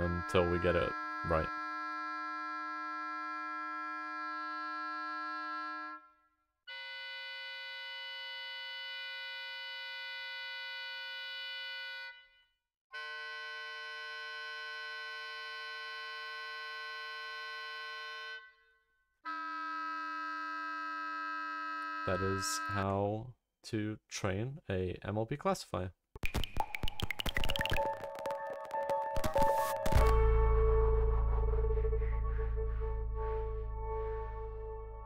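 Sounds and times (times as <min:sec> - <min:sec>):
oboe and trombone sustained notes: 0:00.0 - 0:06.0, 0:22.0 - 0:22.9, 0:28.0 - 0:35.0.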